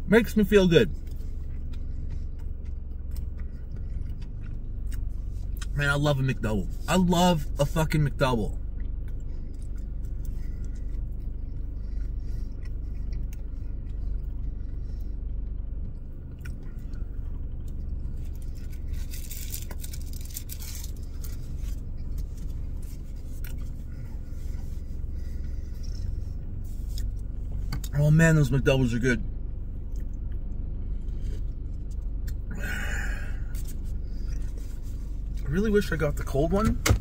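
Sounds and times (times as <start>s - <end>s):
air conditioning hum: 0.0s - 37.0s
car engine idling: 0.0s - 37.0s
man chewing food: 1.0s - 5.7s, 8.7s - 27.9s, 29.6s - 35.5s.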